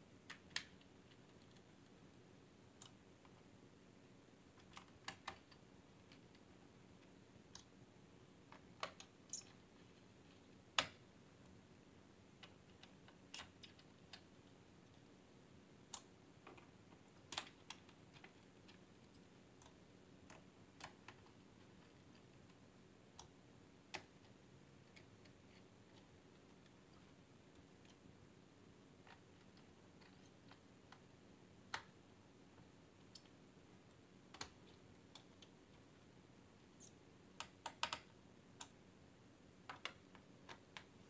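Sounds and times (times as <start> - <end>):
faint steady hum: 0.0 - 41.0.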